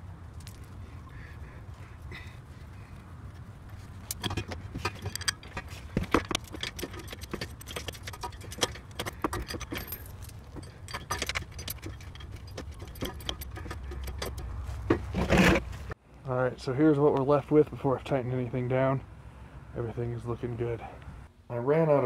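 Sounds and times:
metallic clicks and clinks: 4.0 - 14.6.

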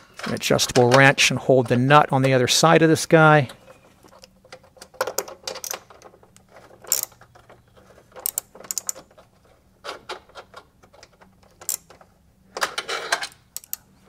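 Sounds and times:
ratchet clicking: 6.9 - 7.2, 13.6 - 13.9.

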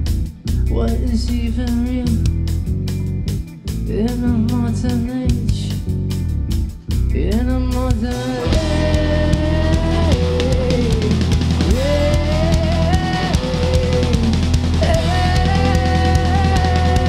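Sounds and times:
person singing: 0.0 - 2.3, 3.8 - 5.9, 7.1 - 17.0
bass guitar: 0.0 - 17.0
electric guitar: 0.0 - 17.0
drum kit with cymbal strikes: 8.0 - 17.0.

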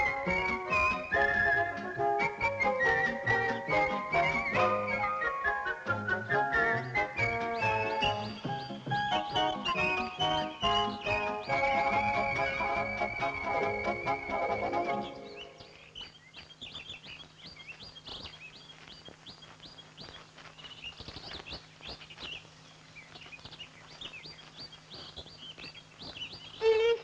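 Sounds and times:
background music: 0.0 - 15.9
birds chirping and whistling: 0.0 - 27.0
faint steady hum: 0.0 - 27.0.

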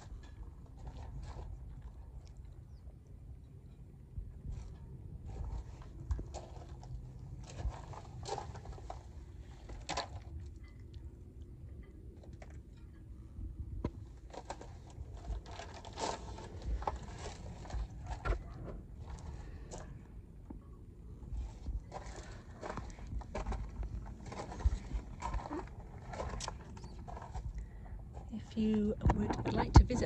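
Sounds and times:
footsteps on gravel: 14.4 - 18.2, 21.9 - 27.5.

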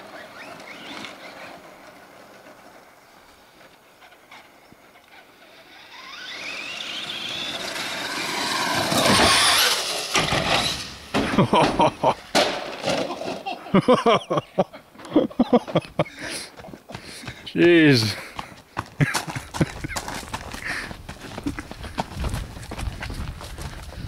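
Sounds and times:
sharp noises: 4.0 - 14.4
electric motor whine: 5.0 - 11.1.

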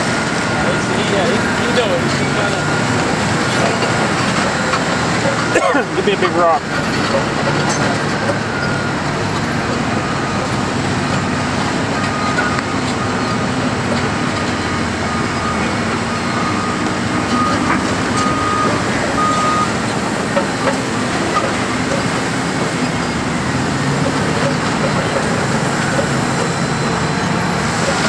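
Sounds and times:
heavy equipment engine drone: 0.0 - 28.0
faint backup alarm beeping: 14.5 - 19.9.

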